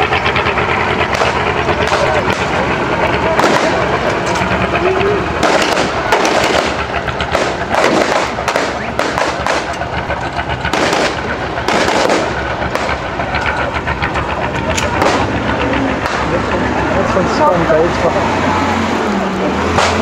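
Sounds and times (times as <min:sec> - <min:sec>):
tank engine running: 0:00.0 - 0:20.0
rifle and machine gun fire: 0:03.4 - 0:03.9, 0:05.4 - 0:09.8, 0:10.7 - 0:13.0.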